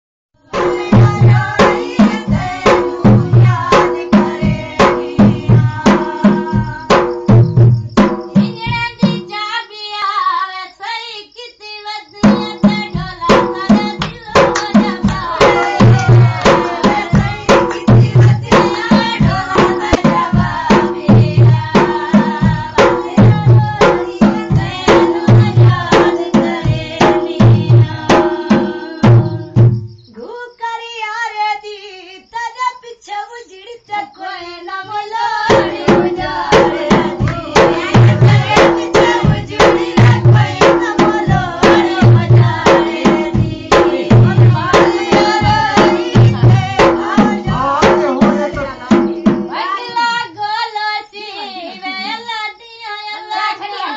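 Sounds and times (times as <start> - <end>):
women singing: 0.4 - 53.9
hand drum folk beat: 0.5 - 9.3, 12.2 - 30.0, 34.8 - 50.2.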